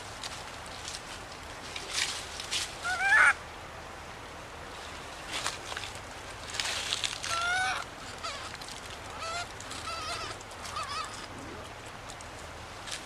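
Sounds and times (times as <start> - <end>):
infant monkey whimpering: 7.3 - 11.9.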